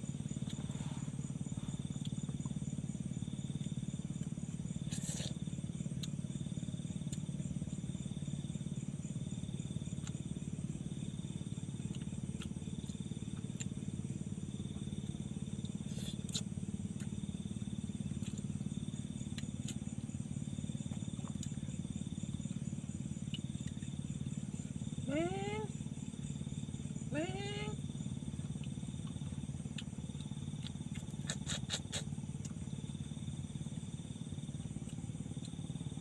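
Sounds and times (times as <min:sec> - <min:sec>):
insects chirring: 0:00.0 - 0:36.0.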